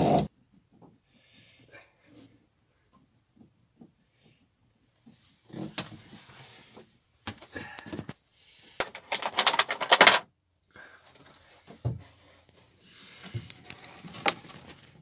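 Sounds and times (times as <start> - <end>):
rustling and clattering: 2.2 - 8.2, 8.8 - 10.3, 11.0 - 15.0.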